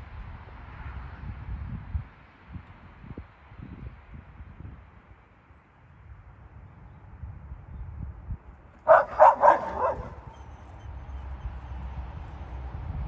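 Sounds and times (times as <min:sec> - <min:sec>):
small dogs barking: 0:08.8 - 0:10.9.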